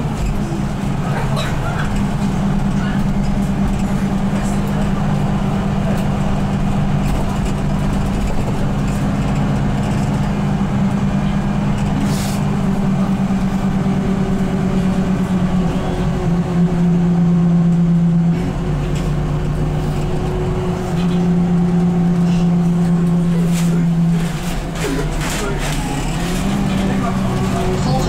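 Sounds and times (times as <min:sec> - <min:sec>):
bus engine and drivetrain hum: 0:00.0 - 0:28.0
road noise: 0:00.0 - 0:28.0.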